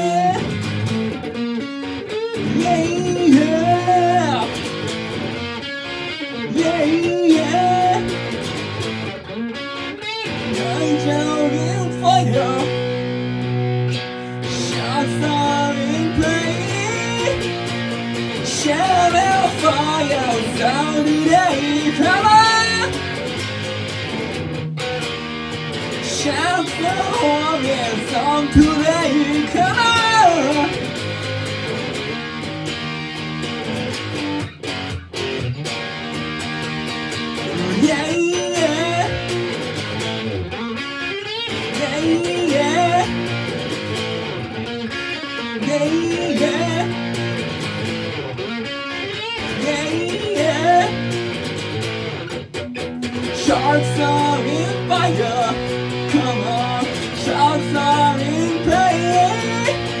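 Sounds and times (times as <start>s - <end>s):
man singing: 0.0s - 0.6s, 2.3s - 4.8s, 6.3s - 8.4s, 10.2s - 13.0s, 14.0s - 23.2s, 26.0s - 30.9s, 37.4s - 39.6s, 41.4s - 43.6s, 45.1s - 47.4s, 49.4s - 51.2s, 53.1s - 60.0s
electric guitar strumming: 0.0s - 60.0s.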